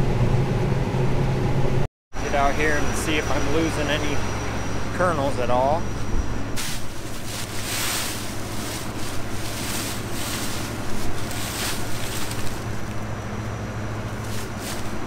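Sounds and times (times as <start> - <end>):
harvester engine running: 0.0 - 15.0
footsteps crunching dry stalks: 6.6 - 15.0.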